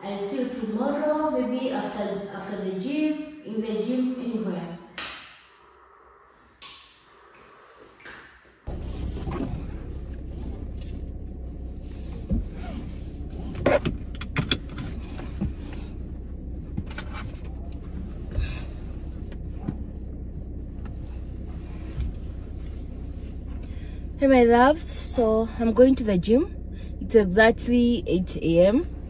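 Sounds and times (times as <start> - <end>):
car engine idling: 8.7 - 29.0.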